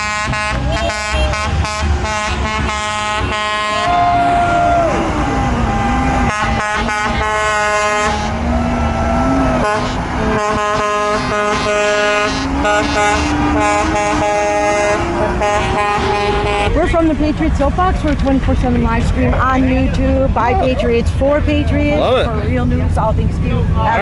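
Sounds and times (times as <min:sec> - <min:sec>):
vehicle horns honking: 0:00.0 - 0:05.0, 0:05.7 - 0:08.5, 0:09.2 - 0:17.2
passing traffic: 0:00.0 - 0:24.0.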